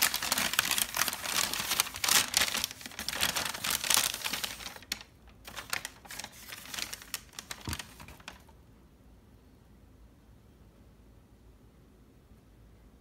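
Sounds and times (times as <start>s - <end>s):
packing paper crinkling: 0.0s - 8.6s.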